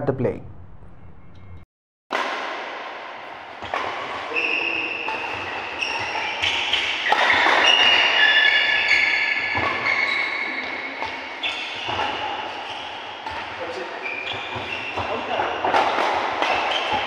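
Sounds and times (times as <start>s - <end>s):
rackets hitting shuttlecock: 2.2s - 17.0s
high squealing tones: 3.7s - 15.8s.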